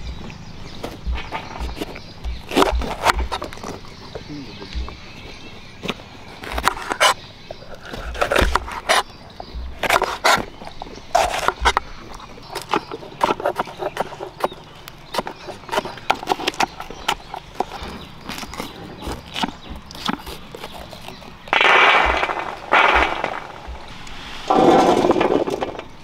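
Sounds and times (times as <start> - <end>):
knife chopping on wooden board: 1.0 - 3.8, 7.9 - 9.0
knife scraping on board: 9.8 - 14.4.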